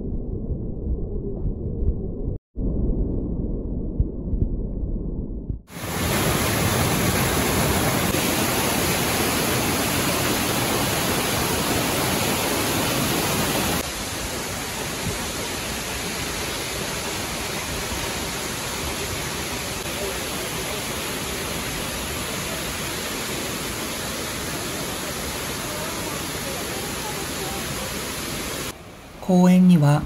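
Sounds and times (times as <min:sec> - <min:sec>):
underwater rumble of water: 0:00.0 - 0:08.5
waterfall rushing: 0:05.7 - 0:28.8.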